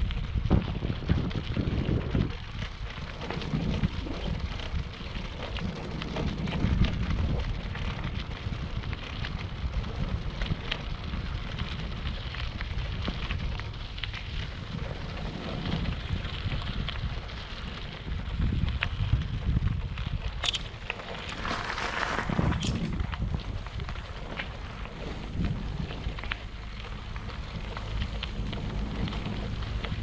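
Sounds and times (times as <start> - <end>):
bike ticks and rattles: 0.0 - 30.0
wind buffeting microphone: 0.0 - 30.0
tyres rolling on road: 0.1 - 30.0.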